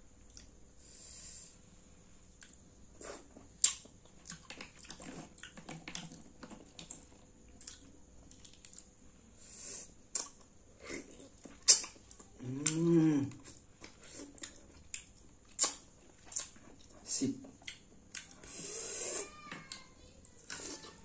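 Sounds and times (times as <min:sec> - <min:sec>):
person humming: 0:12.3 - 0:13.4
wet smacks and slurps: 0:13.8 - 0:16.9
mussels being sucked from shells: 0:18.5 - 0:19.3.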